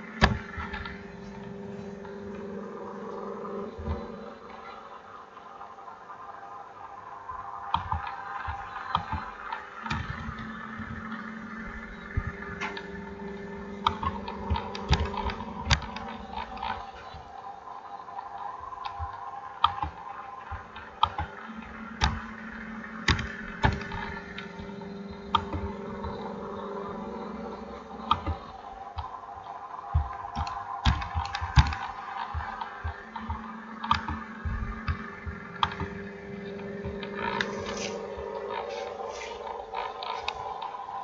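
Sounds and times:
steady background drone: 0:00.0 - 0:41.0
computer keyboard typing clicks: 0:29.9 - 0:35.0.

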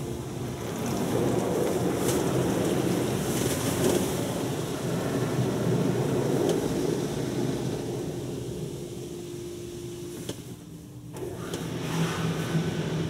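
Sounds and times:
car wash spraying foam on car: 0:11.7 - 0:13.0.

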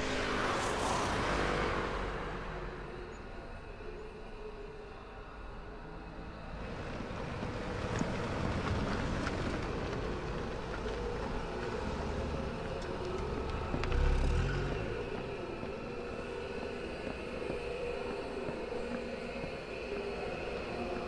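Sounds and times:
passing car engine: 0:00.0 - 0:03.0, 0:06.7 - 0:16.6
street traffic rumble: 0:00.0 - 0:04.0, 0:05.1 - 0:21.0.

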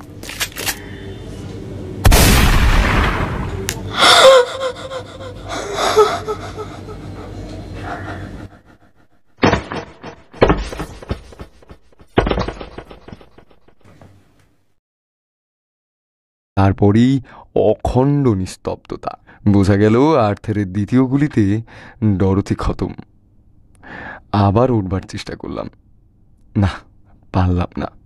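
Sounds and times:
gunshot boom: 0:02.0 - 0:03.7
woman screaming: 0:04.0 - 0:06.6.

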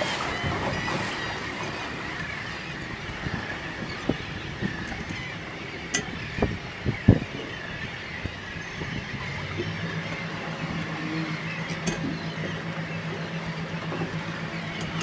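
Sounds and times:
boat engine humming: 0:00.0 - 0:15.0
wind and water noise: 0:00.0 - 0:15.0.

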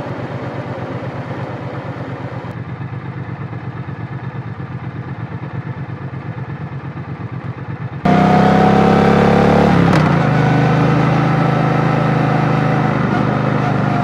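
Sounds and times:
motorcycle engine idling: 0:00.0 - 0:08.2
motorcycle engine under way: 0:00.0 - 0:14.0.

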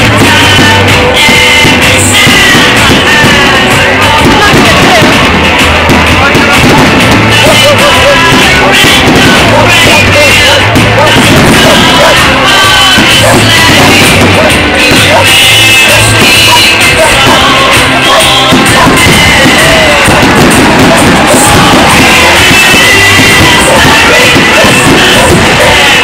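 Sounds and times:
loud music with singing: 0:00.0 - 0:26.0
steady bass beat: 0:00.0 - 0:26.0.

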